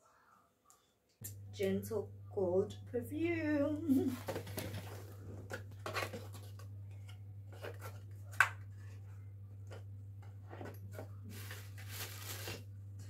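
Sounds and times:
low hum: 0:01.2 - 0:13.0
packaging rustling and tapping: 0:04.2 - 0:08.7.

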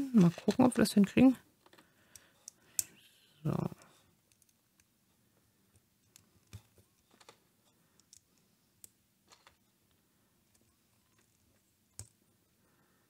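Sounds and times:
plastic toy bricks clicking: 0:08.0 - 0:09.6.

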